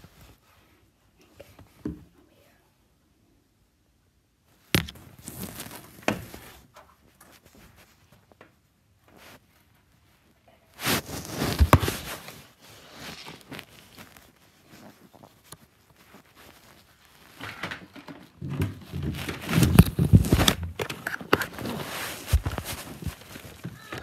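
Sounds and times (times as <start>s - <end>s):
clothing rubbing on microphone: 4.9s - 8.4s, 9.0s - 17.4s, 18.8s - 24.0s.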